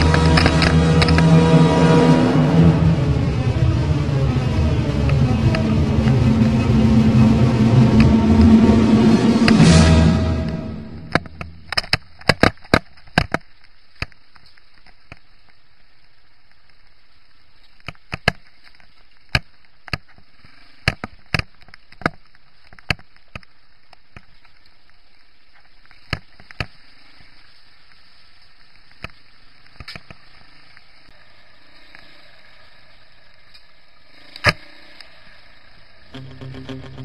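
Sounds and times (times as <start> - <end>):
steady low hiss: 0.0 - 37.0
guitar music: 36.2 - 37.0.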